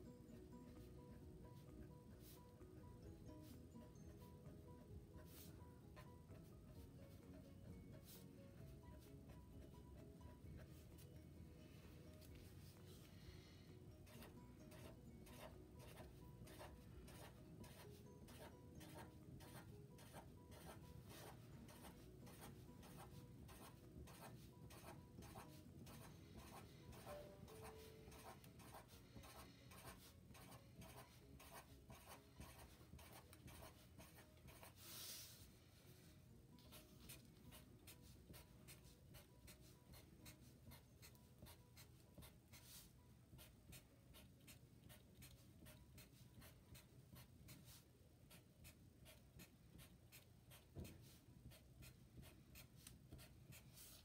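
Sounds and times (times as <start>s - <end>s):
marker scratching on paper: 14.0s - 35.5s, 36.6s - 54.0s.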